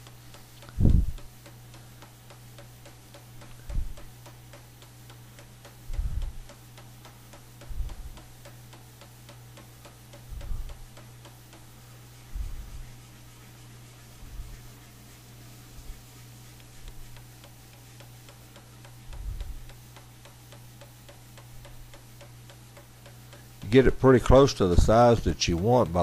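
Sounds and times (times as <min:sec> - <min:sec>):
fast even ticking: 0:00.0 - 0:11.7, 0:16.5 - 0:26.0
steady low hum: 0:00.0 - 0:26.0.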